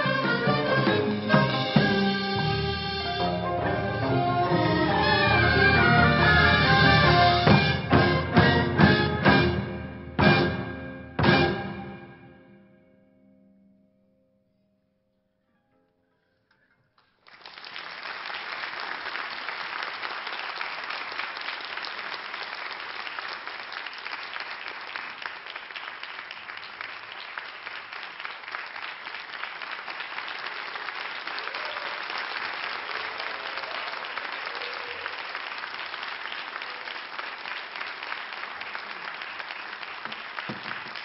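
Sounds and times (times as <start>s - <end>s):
audience applauding: 17.0s - 41.0s.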